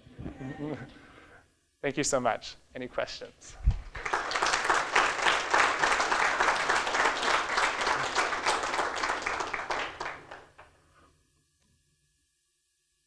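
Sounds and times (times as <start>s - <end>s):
audience applauding: 3.9s - 10.7s.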